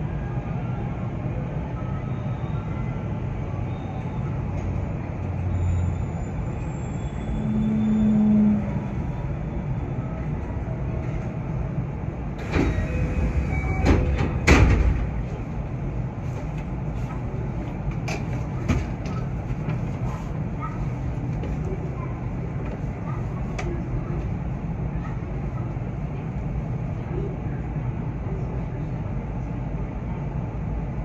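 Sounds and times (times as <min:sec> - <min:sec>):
train equipment humming: 0:07.1 - 0:31.0.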